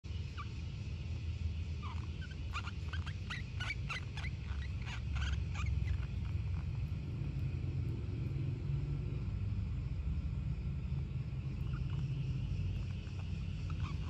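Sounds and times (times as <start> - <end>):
sugar glider chirping: 0.1 - 14.0
low rumble: 3.6 - 14.0.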